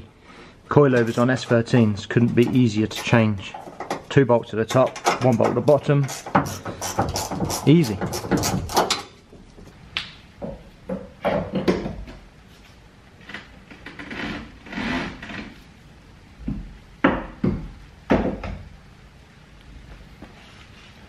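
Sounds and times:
tools clunking and knocking on car: 0:02.1 - 0:09.1, 0:10.4 - 0:12.3, 0:16.4 - 0:18.7.

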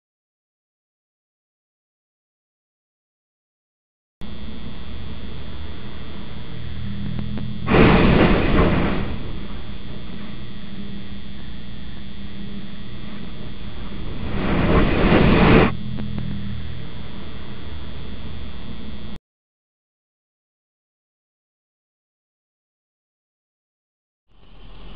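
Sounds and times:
steady hiss and hum: 0:04.2 - 0:19.2.

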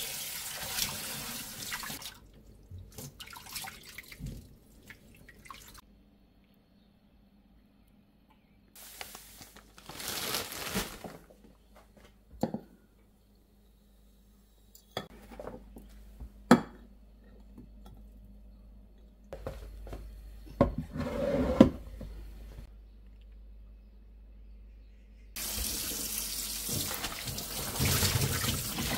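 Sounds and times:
rustling: 0:08.8 - 0:12.1
jar scraping on wooden shelf: 0:20.9 - 0:21.8.

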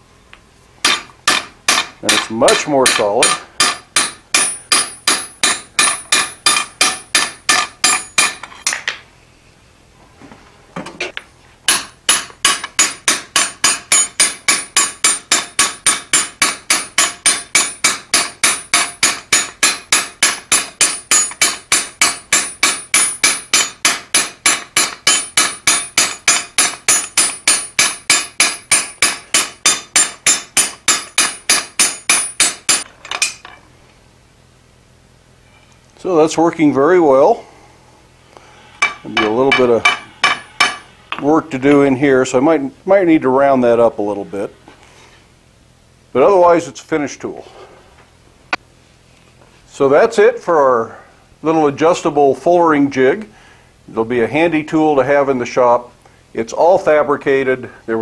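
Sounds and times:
hammer striking metal: 0:00.8 - 0:09.0, 0:11.7 - 0:33.6, 0:38.8 - 0:41.3.

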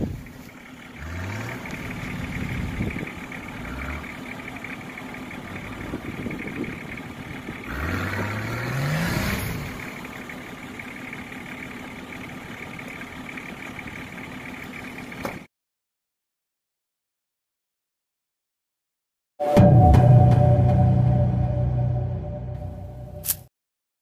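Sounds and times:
off-road engine revving: 0:00.0 - 0:15.5.

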